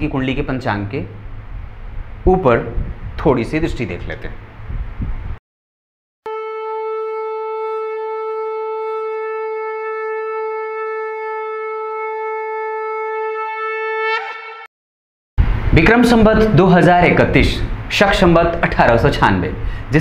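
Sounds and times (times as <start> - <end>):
conch shell blown: 6.3 - 14.7.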